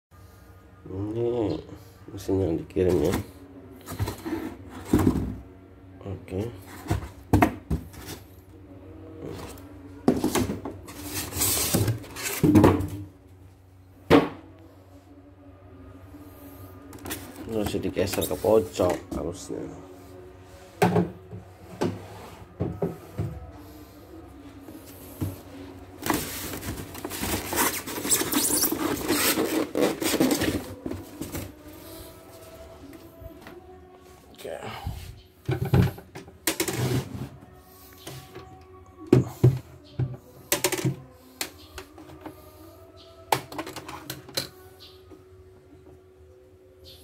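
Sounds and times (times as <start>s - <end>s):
plastic scraping on styrofoam: 26.0s - 31.6s.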